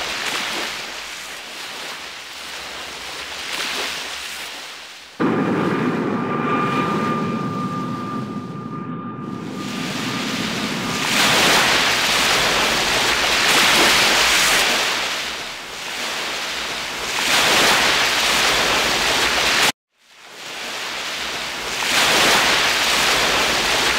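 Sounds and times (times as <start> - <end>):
choppy water washing: 0.0 - 6.2, 9.6 - 23.9
wind on microphone: 5.2 - 14.2.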